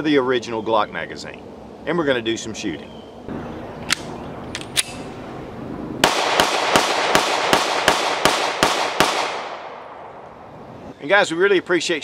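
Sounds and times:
pistol handling clicks: 3.8 - 5.0
pistol shots with ringing echo: 6.0 - 10.1.

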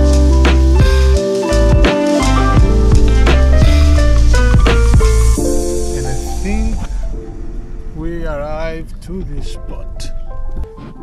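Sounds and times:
heavy bass: 0.0 - 10.6
sustained chords: 0.0 - 10.6
drum hits: 1.7 - 9.4.

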